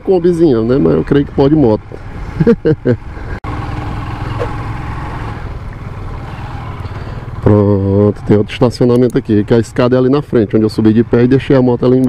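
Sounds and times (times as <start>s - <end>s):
motorcycle engine running: 3.2s - 12.0s.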